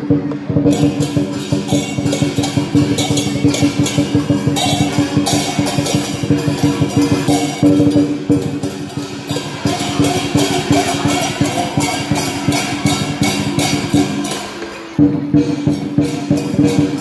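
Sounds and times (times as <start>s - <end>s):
cymbals clashing: 0.0s - 17.0s
drum beaten fast: 0.0s - 17.0s.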